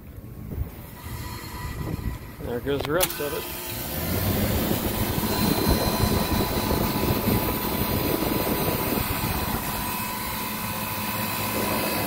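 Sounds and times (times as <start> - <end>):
condenser fan rushing: 0.0 - 12.0
low compressor hum: 0.0 - 12.0.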